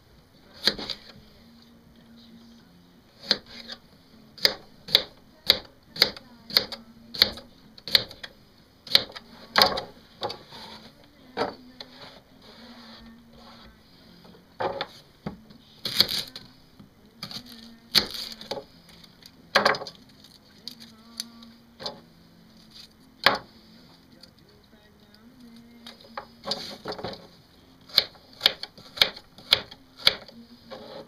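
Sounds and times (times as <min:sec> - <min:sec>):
knife chopping on cutting board: 0:04.4 - 0:08.2, 0:27.9 - 0:31.0.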